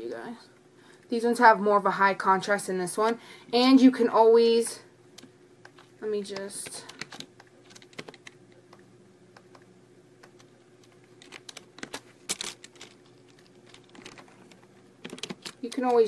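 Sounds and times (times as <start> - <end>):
faint steady hum: 0.0 - 16.0
keyboard and mouse clicking: 5.2 - 8.8, 9.4 - 16.0.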